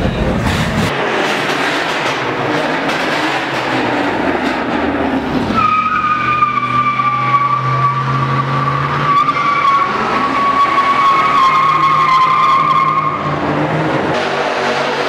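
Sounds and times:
car engine revving hard: 0:00.9 - 0:15.0
tyres squealing: 0:05.4 - 0:13.4.

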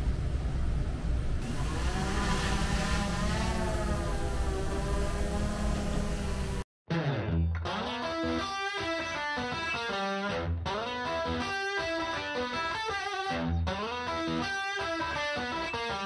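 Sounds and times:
guitar background music: 0:06.9 - 0:16.0.

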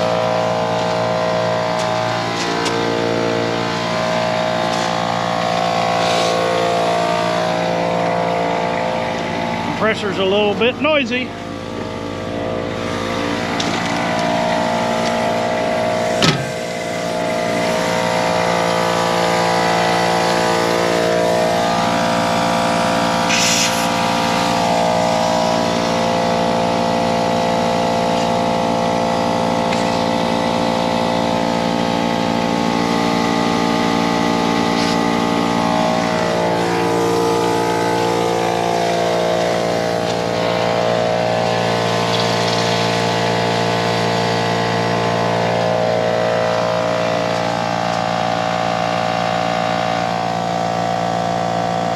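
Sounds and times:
air compressor running: 0:00.0 - 0:51.9
short air hisses: 0:06.0 - 0:06.5, 0:23.3 - 0:24.0.

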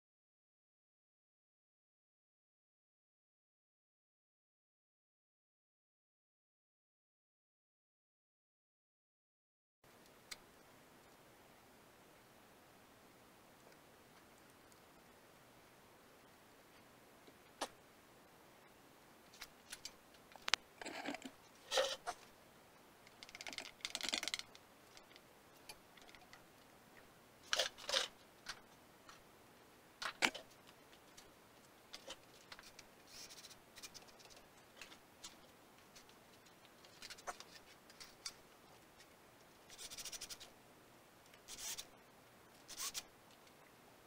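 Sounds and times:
metal parts clicking and scraping: 0:23.1 - 0:26.4, 0:27.4 - 0:28.6.

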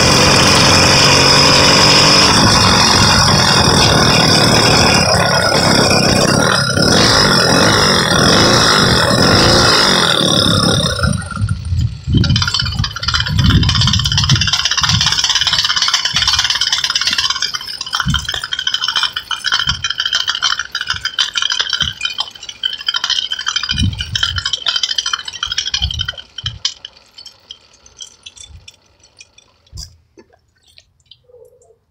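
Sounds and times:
small engine buzzing rattle: 0:00.0 - 0:31.8
wind noise gusts: 0:11.2 - 0:15.2.

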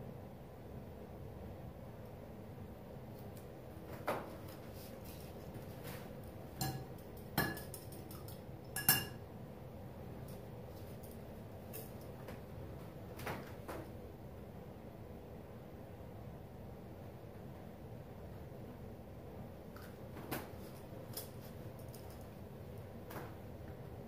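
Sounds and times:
metal knife clinking on container: 0:08.8 - 0:09.2.

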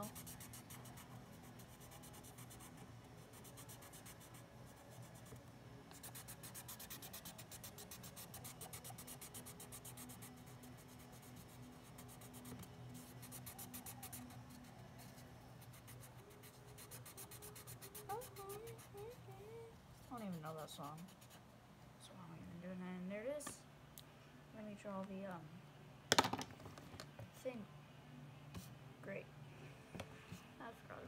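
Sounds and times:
marker scratching cardboard: 0:00.0 - 0:19.3, 0:20.1 - 0:21.4.

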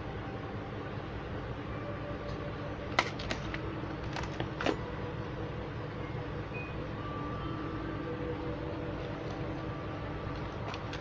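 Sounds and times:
low background rumble: 0:00.0 - 0:11.0.

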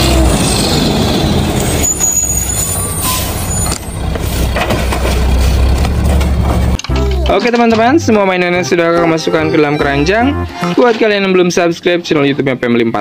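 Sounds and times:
diesel engine running: 0:00.0 - 0:07.3.

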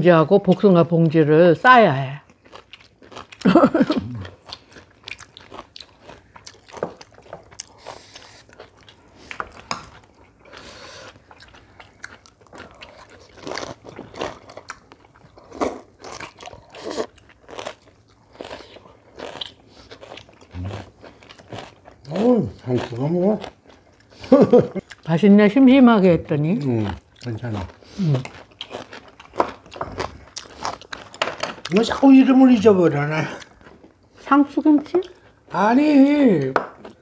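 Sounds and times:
crunchy bites and chewing: 0:02.3 - 0:10.6, 0:11.2 - 0:24.1, 0:26.6 - 0:32.1.

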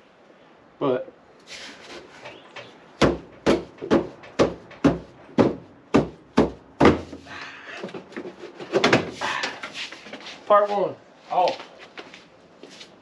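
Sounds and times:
tool knocking on plastic tube: 0:03.0 - 0:07.1.

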